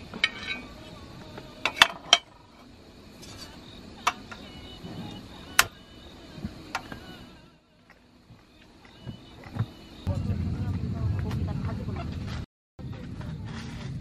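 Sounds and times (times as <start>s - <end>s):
crickets chirping: 0.0s - 14.0s.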